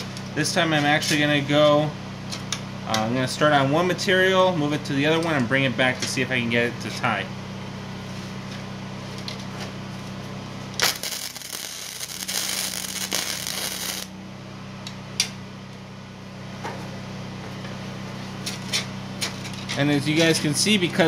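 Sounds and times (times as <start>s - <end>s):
steady low hum: 0.0s - 21.0s
welder arc crackling: 10.8s - 14.1s.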